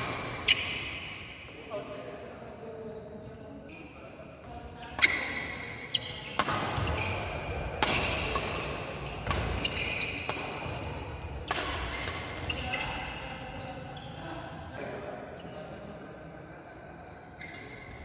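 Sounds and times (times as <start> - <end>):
rackets hitting shuttlecock: 4.8 - 12.6.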